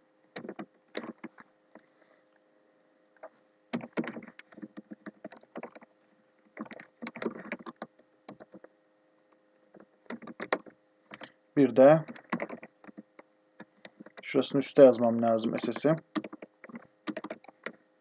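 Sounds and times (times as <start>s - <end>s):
computer keyboard typing: 0.4s - 1.4s, 3.2s - 5.9s, 6.5s - 8.7s, 9.7s - 11.3s, 12.0s - 14.3s, 15.2s - 17.8s.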